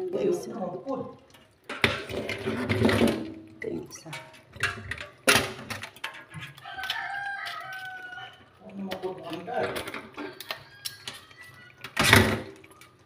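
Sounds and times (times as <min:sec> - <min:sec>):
dripping water: 0:00.0 - 0:13.0
crab shells clattering in a steel sink: 0:01.3 - 0:13.0.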